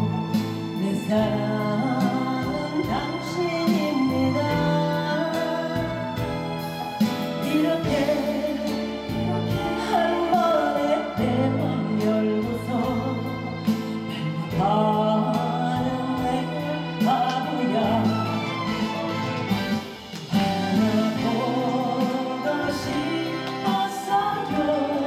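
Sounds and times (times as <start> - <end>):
woman singing into a microphone: 0.0 - 18.8, 20.3 - 25.0
band of guitars violin and keyboard: 0.0 - 25.0.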